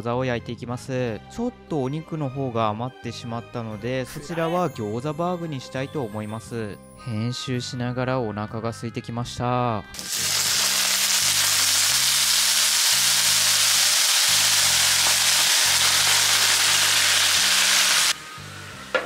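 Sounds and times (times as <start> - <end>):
water sizzling on hot plate: 10.0 - 19.0.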